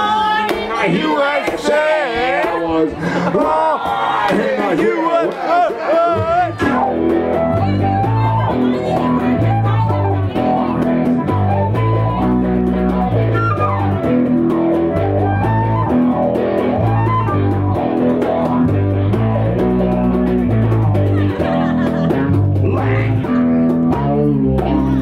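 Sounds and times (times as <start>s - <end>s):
percussion: 0.0s - 25.0s
bass guitar riff: 2.8s - 25.0s
electric guitar: 5.5s - 25.0s
flute melody: 5.7s - 18.6s.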